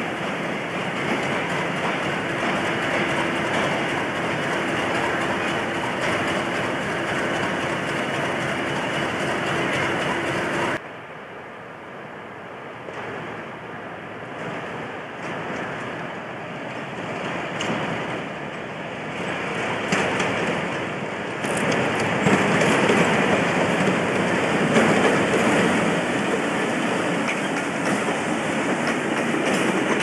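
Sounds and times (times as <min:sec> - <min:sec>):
train wheels clicking over rail joints: 0:00.0 - 0:10.8, 0:14.4 - 0:30.0
diesel locomotive engine: 0:00.0 - 0:11.0, 0:12.1 - 0:30.0
steady train sound: 0:00.0 - 0:30.0.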